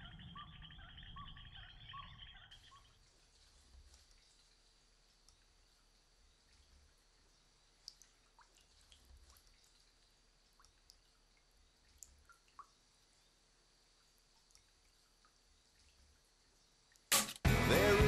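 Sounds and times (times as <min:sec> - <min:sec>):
loud music: 0:17.1 - 0:18.0.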